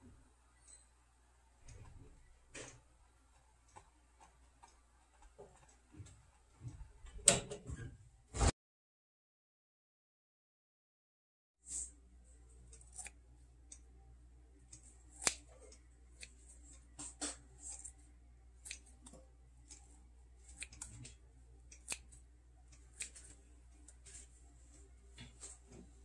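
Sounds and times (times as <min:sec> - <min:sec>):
low steady hum: 0:11.7 - 0:26.0.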